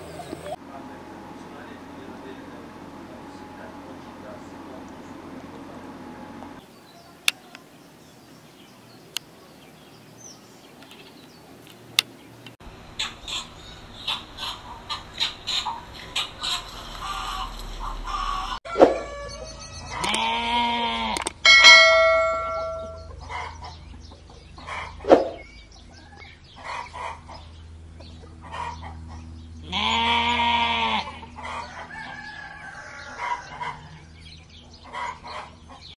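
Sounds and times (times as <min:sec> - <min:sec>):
rooster crowing: 0:16.2 - 0:20.0, 0:31.4 - 0:34.3
bell-like chime: 0:21.5 - 0:23.2.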